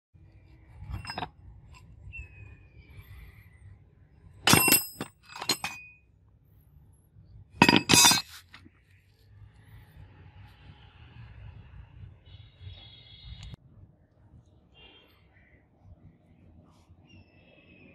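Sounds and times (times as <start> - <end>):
scrap metal clanking: 0.8 - 1.3, 4.5 - 5.8, 7.6 - 8.6.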